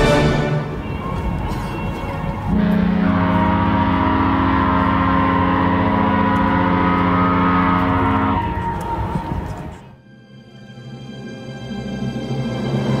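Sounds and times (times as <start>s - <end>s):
ship's horn blast: 0.0s - 9.8s.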